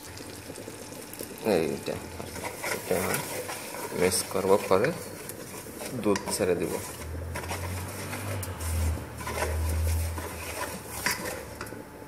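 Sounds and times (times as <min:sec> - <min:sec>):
spoon scraping a metal pan: 0:02.2 - 0:11.8.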